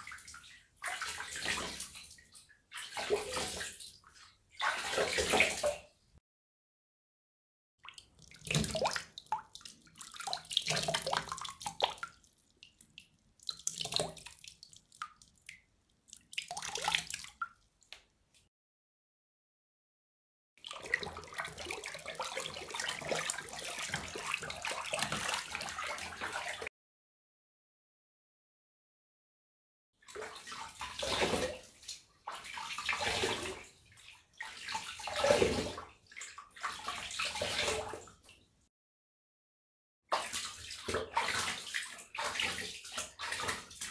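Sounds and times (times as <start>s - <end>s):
water splashing and sloshing: 0.0s - 6.2s, 7.8s - 18.5s, 20.6s - 26.7s, 30.0s - 38.7s, 40.1s - 43.9s
water dripping: 7.8s - 18.4s, 20.6s - 26.3s.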